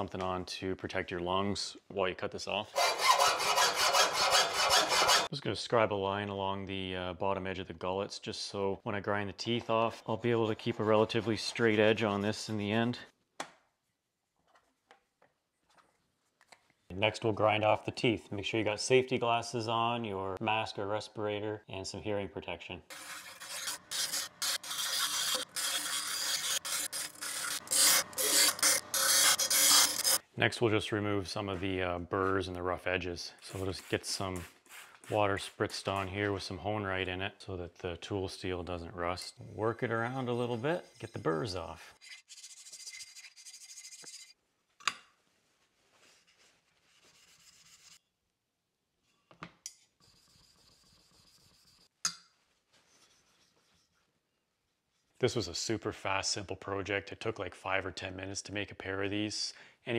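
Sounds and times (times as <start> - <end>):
grinder wheel grinding steel: 2.7 - 5.3, 22.9 - 30.2.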